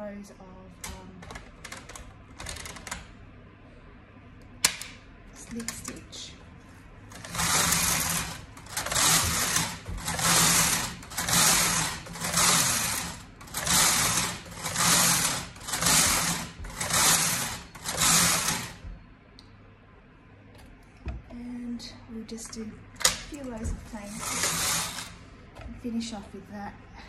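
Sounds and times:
knitting machine carriage clattering: 0.8s - 3.1s, 7.1s - 18.8s, 23.0s - 25.2s.

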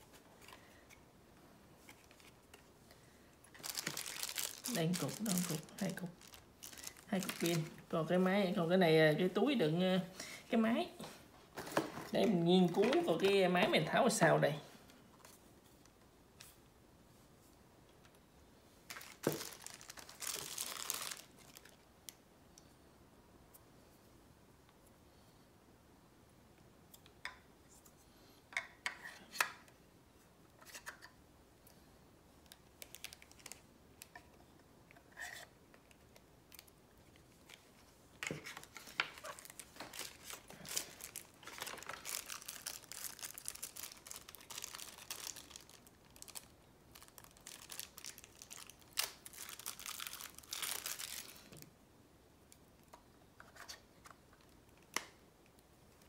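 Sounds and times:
packaging crinkling and tearing: 3.4s - 7.9s, 18.9s - 22.2s, 32.8s - 34.2s, 37.4s - 51.6s.

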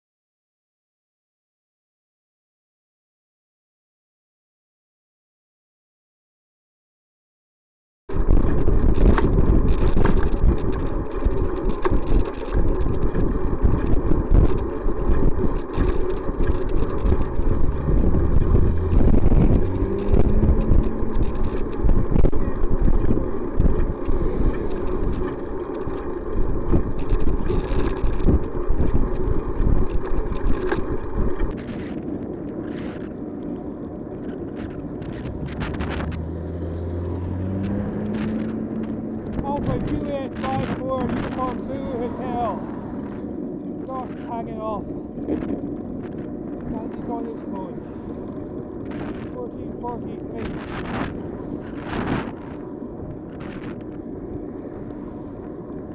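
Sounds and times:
road rumble: 8.1s - 55.9s
wind buffeting microphone: 8.1s - 55.9s
passing car engine hum: 17.3s - 25.6s, 34.6s - 39.4s.

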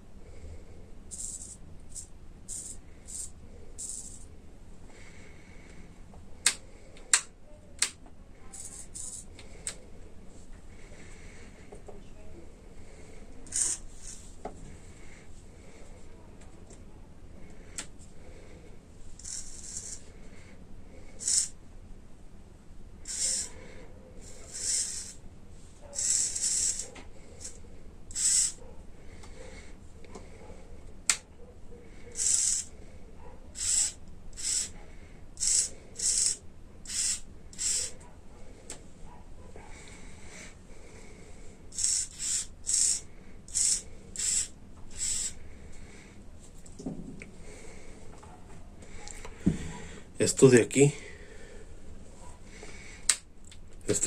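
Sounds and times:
servos whirring: 13.5s - 14.2s, 19.2s - 20.1s, 21.2s - 21.6s, 23.1s - 23.6s, 24.2s - 25.2s, 25.9s - 28.6s, 32.1s - 32.7s, 33.6s - 34.8s, 35.4s - 38.0s, 41.7s - 45.4s.

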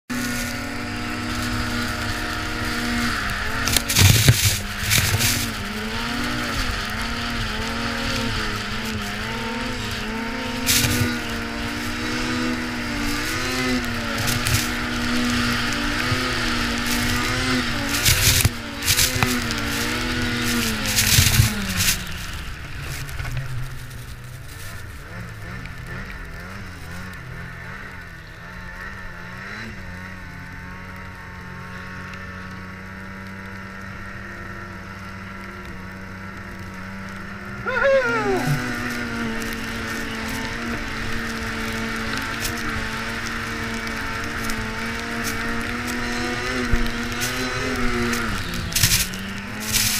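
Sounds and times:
rush of snow: 0.1s - 27.8s, 36.0s - 49.9s
snowmobile engine running: 0.1s - 49.9s
snowmobile thumps: 3.1s - 6.8s, 15.9s - 22.2s.

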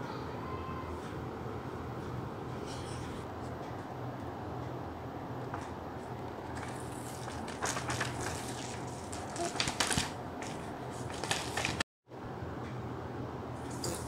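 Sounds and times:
paper rustling and crinkling: 6.0s - 11.8s.

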